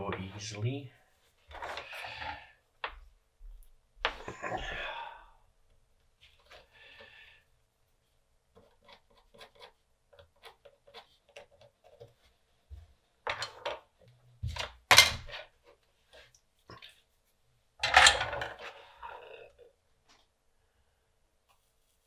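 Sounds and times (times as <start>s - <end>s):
tools clattering on a workbench: 13.2s - 13.9s, 14.5s - 15.5s, 17.8s - 18.8s.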